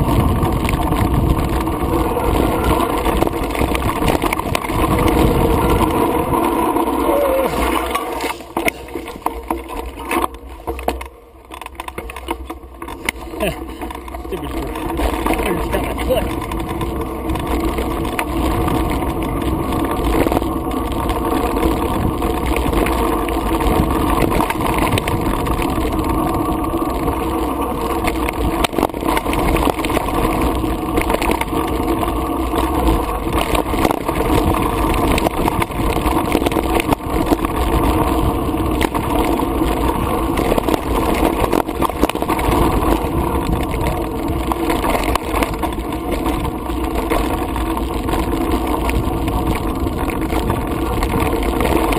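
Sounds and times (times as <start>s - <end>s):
tyre and wind rush: 0.0s - 10.0s
bike rattling and knocking: 0.0s - 51.9s.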